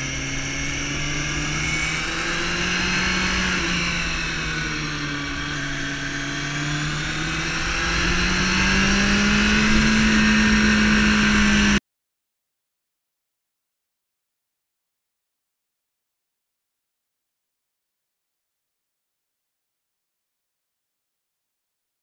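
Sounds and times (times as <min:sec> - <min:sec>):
motorcycle engine running: 0:00.0 - 0:11.8.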